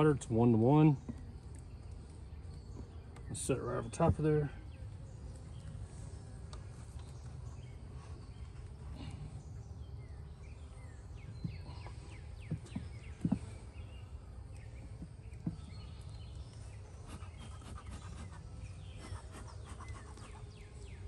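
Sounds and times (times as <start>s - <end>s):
birds chirping: 0.0s - 21.0s
steady low hum: 0.0s - 21.0s
wooden hive body knocking: 11.3s - 16.4s.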